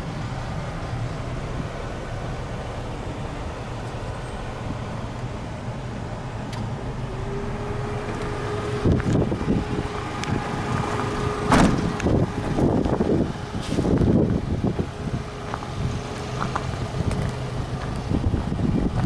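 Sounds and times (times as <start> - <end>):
truck engine idling: 0.0 - 19.0
knocks and thumps in cab: 11.4 - 12.2.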